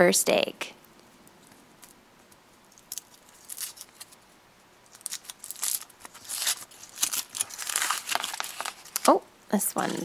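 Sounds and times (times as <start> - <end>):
foil wrapper crinkling: 2.7 - 4.2, 4.8 - 9.2.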